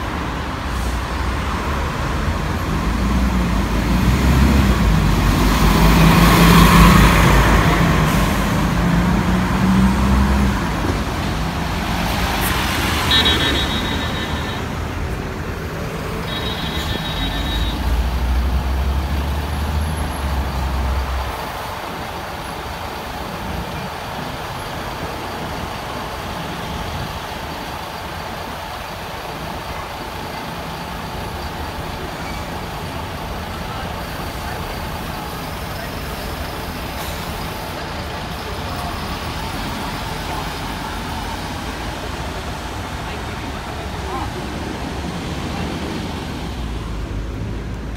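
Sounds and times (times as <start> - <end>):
bus engine running: 0.0 - 47.9
traffic noise: 0.0 - 47.9.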